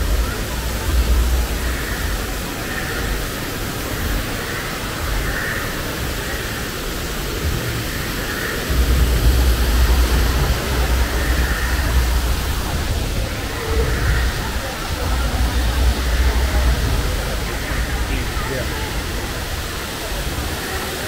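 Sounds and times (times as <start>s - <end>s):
water rushing over rocks: 0.0s - 21.0s
low rumble: 8.7s - 20.6s.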